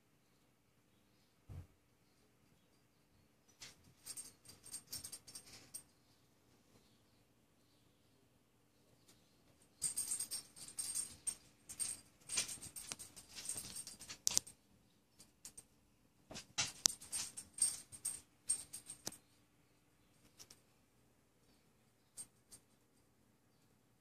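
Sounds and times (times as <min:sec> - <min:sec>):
dog collar tags jingling: 0:09.8 - 0:14.5, 0:16.6 - 0:19.2.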